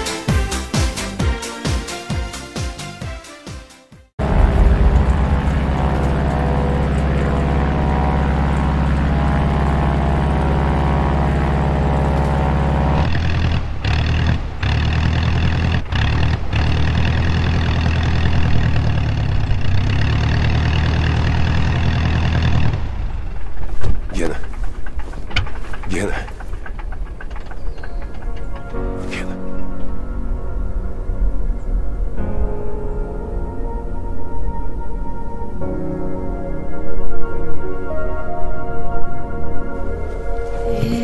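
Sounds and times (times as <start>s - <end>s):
biplane piston engine droning: 4.2s - 32.6s.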